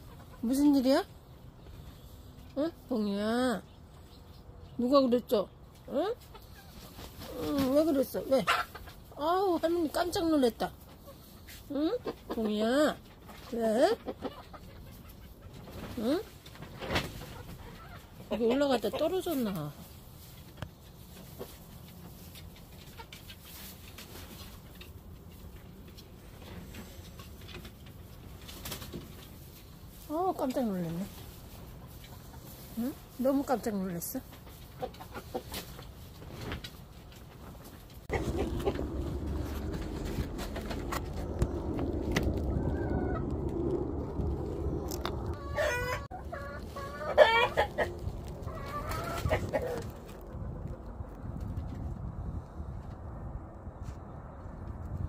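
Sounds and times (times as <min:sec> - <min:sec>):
low steady rumble: 0:37.9 - 0:55.0
rooster clucking calls: 0:38.1 - 0:40.1, 0:45.3 - 0:49.9.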